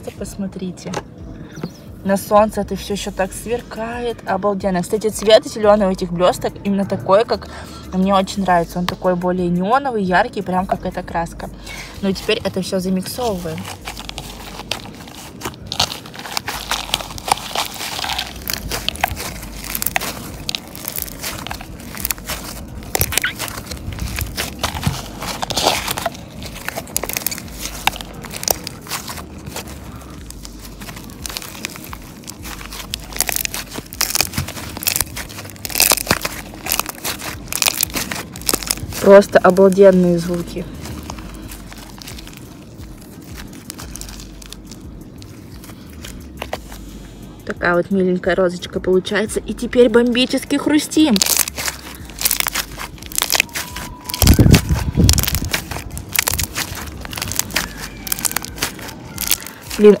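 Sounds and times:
slime crackling and popping: 0:11.8 - 0:47.0, 0:49.9 - 1:00.0.

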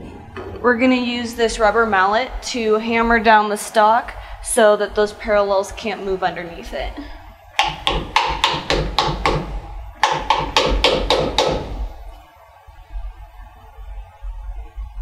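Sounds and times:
rubber mallet tapping metal: 0:07.6 - 0:12.0.

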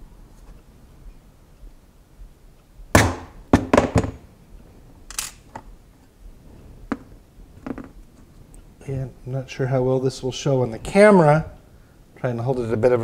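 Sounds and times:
metal parts clicking on wooden bench: 0:05.1 - 0:05.7.

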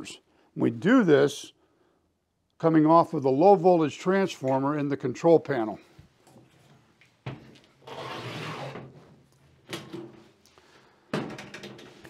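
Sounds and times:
door rubbing noise: 0:07.8 - 0:09.0.

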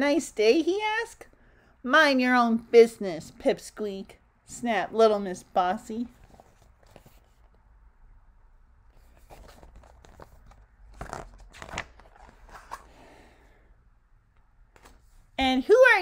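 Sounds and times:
paper pages rustling: 0:06.1 - 0:07.6, 0:09.0 - 0:13.0
paper crackles: 0:09.2 - 0:12.9.

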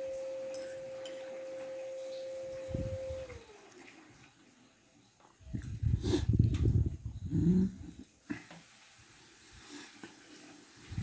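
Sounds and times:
person humming: 0:07.3 - 0:08.0.

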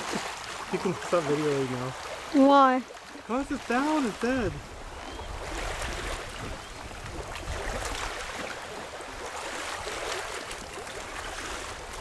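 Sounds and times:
river water lapping at shore: 0:00.0 - 0:12.0
wind buffeting microphone: 0:03.8 - 0:10.1.

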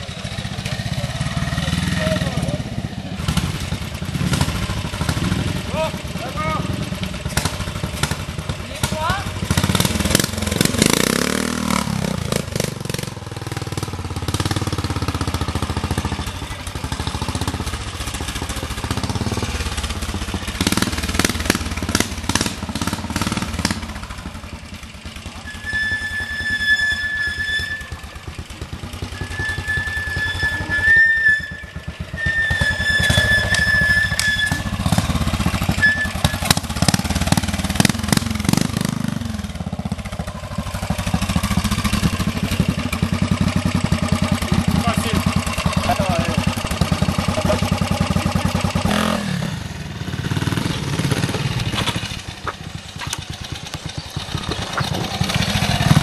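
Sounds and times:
motorcycle engine revving: 0:00.0 - 0:56.0
high whistle-like tone: 0:25.4 - 0:28.2, 0:29.1 - 0:34.8, 0:35.7 - 0:36.5.

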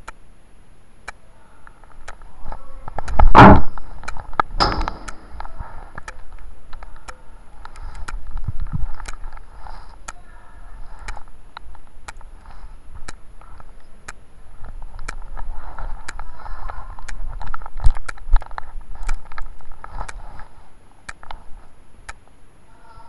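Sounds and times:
sharp clicks: 0:00.0 - 0:00.2, 0:01.0 - 0:02.3, 0:02.9 - 0:10.2, 0:11.0 - 0:20.5, 0:22.0 - 0:22.4
faint indistinct voices: 0:01.1 - 0:03.3, 0:09.5 - 0:11.4, 0:22.6 - 0:23.0
muffled handling noise: 0:01.6 - 0:22.4.

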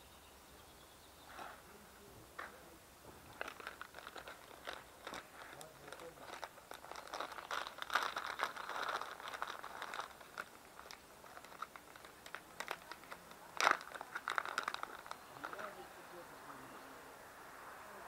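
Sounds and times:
packaging crinkling: 0:03.3 - 0:15.7.

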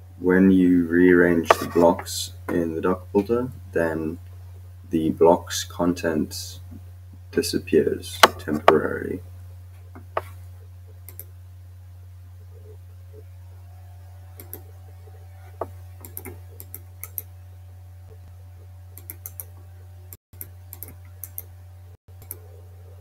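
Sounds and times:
low electrical hum: 0:00.0 - 0:23.0
computer mouse clicks: 0:11.1 - 0:11.3, 0:14.4 - 0:14.6, 0:16.0 - 0:17.3, 0:19.0 - 0:19.5, 0:20.4 - 0:21.5, 0:22.2 - 0:22.4.

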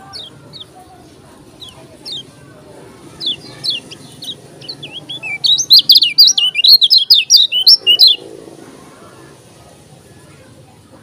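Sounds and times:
bird chirps: 0:01.6 - 0:02.3, 0:03.1 - 0:08.2
bird whistled song: 0:03.2 - 0:08.2.

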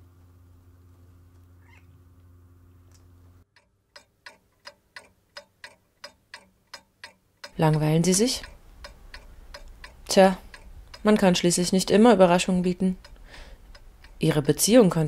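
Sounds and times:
low hum: 0:00.0 - 0:04.6
clock ticking: 0:03.5 - 0:15.0.

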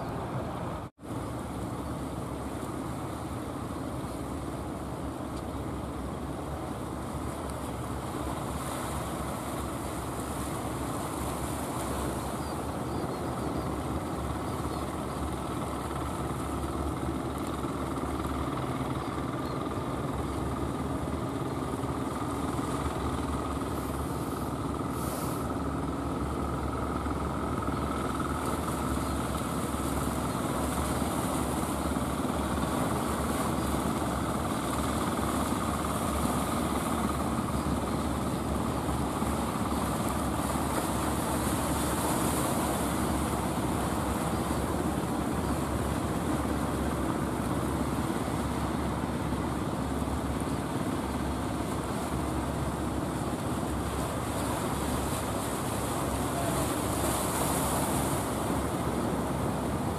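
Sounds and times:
boat engines droning: 0:00.0 - 0:59.9
short hiss: 0:24.9 - 0:25.5.

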